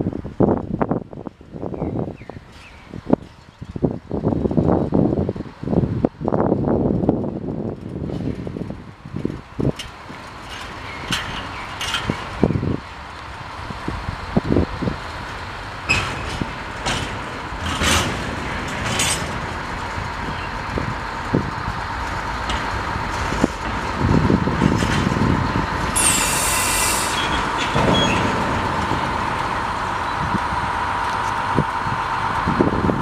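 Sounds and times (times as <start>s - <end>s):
diesel locomotive whining: 0.0s - 33.0s
wagon wheels knocking over rail joints: 15.8s - 26.2s
air hiss: 26.0s - 27.4s.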